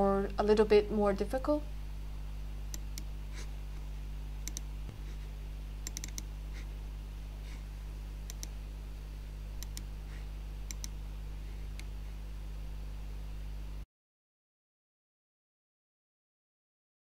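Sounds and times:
low electrical hum: 0.0s - 13.9s
computer mouse clicking: 2.7s - 3.1s, 4.4s - 4.7s, 5.8s - 6.3s, 8.3s - 8.6s, 9.6s - 9.9s, 10.7s - 11.0s.

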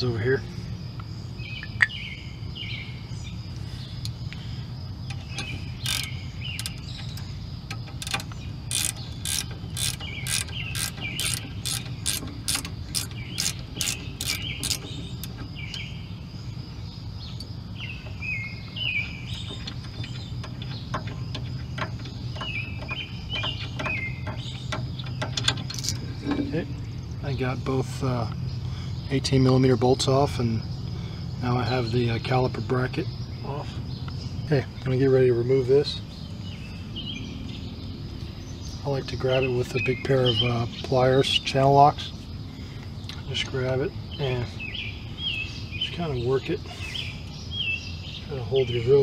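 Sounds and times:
ratchet clicking: 5.1s - 15.5s, 19.4s - 26.1s.

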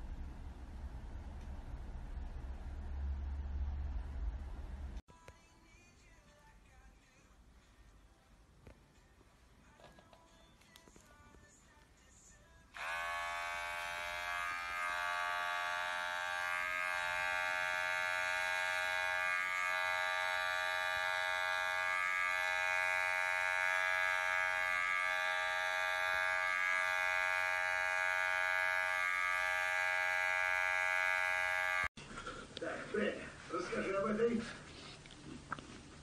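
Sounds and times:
electric hair clipper buzzing: 12.7s - 32.0s.

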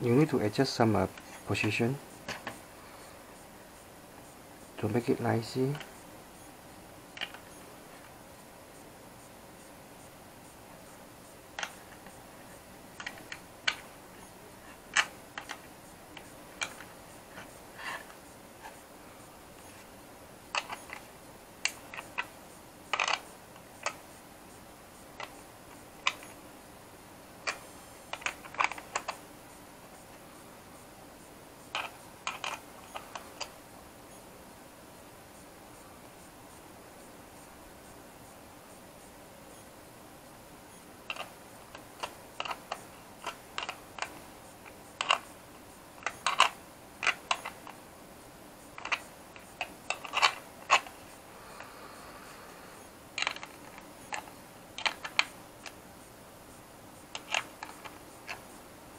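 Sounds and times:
faint room hiss: 0.0s - 58.9s.

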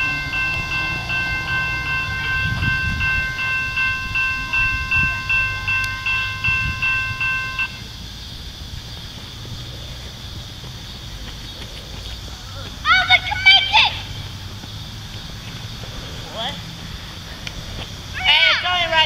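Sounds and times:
railroad crossing bell ringing: 0.0s - 7.9s.

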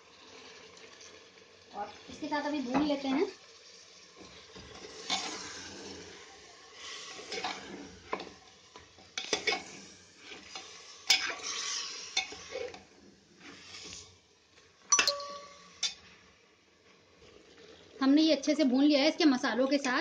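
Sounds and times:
meat sizzling in oil: 0.0s - 20.0s
metal spatula scraping pot: 4.7s - 5.6s, 7.2s - 8.3s, 9.2s - 12.8s
spatula clinking against pot: 14.9s - 16.0s.

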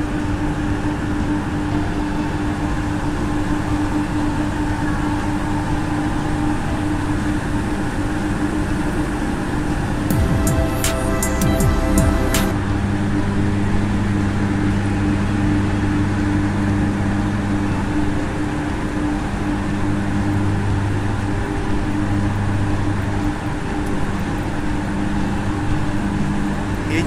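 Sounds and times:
steady higher tones: 10.1s - 13.9s
constant mechanical rush: 12.5s - 27.0s.

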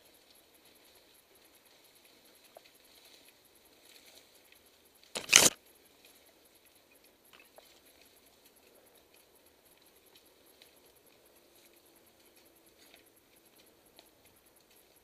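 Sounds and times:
faint ticks: 0.0s - 15.0s
ferns rustling against camera: 5.2s - 5.6s.

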